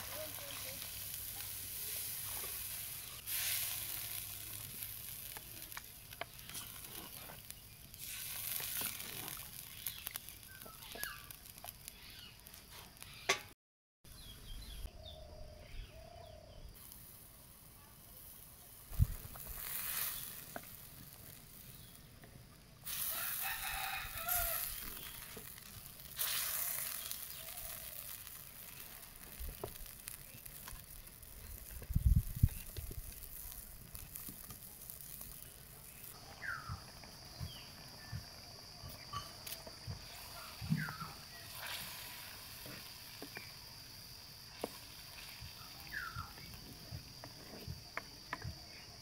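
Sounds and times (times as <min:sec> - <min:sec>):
rooster crowing: 0:23.0 - 0:25.0.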